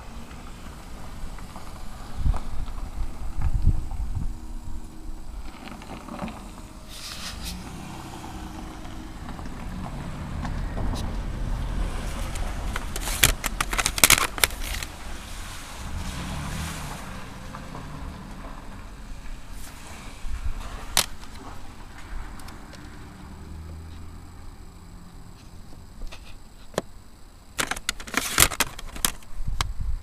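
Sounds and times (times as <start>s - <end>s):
low handling rumble: 0.0s - 26.0s
plastic cases clacking: 12.2s - 14.9s, 27.6s - 29.3s.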